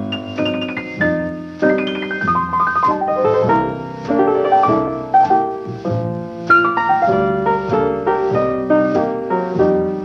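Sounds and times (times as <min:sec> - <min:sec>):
piano background music: 0:00.0 - 0:10.0.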